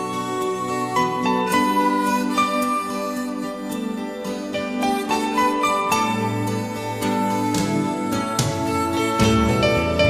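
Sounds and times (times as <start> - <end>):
slow pop ballad instrumental: 0.0 - 10.0.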